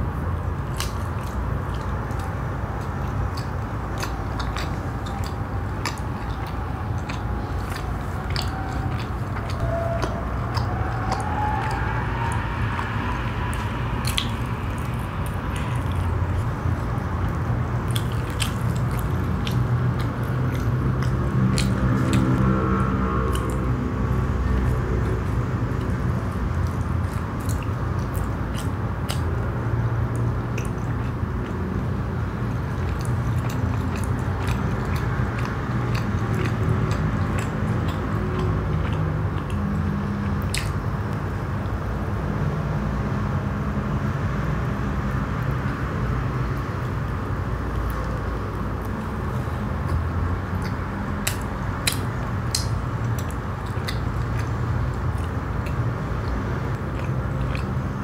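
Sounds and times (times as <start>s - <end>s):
chewing soft bread: 0.0s - 58.0s
wet mouth clicks: 0.7s - 29.5s, 30.1s - 31.7s, 32.7s - 41.2s, 47.7s - 58.0s.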